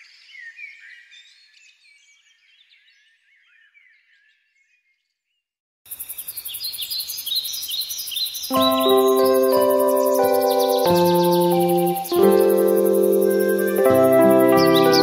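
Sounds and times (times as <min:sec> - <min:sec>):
birds chirping and twittering: 0:05.9 - 0:15.0
high pulsing buzz: 0:08.5 - 0:15.0.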